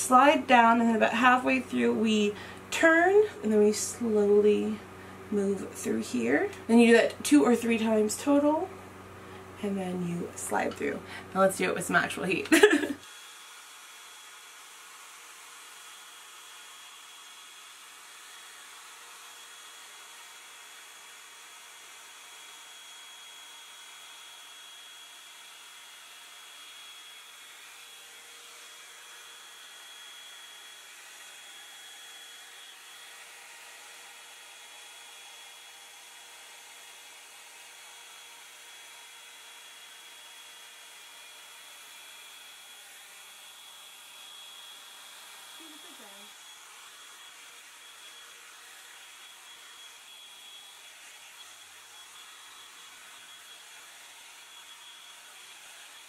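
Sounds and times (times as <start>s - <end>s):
hot-air brush running: 0.0s - 56.0s.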